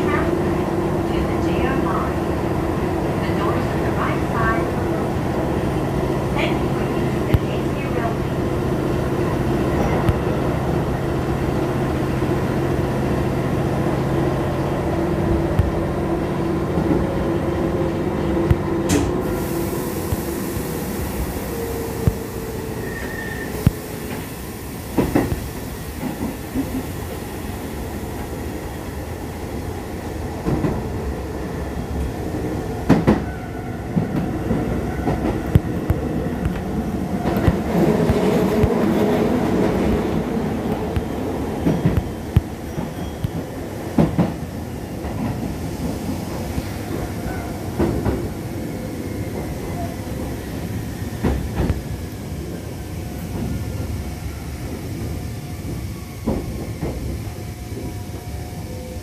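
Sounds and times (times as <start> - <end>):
train drive whine: 0.0 - 59.0.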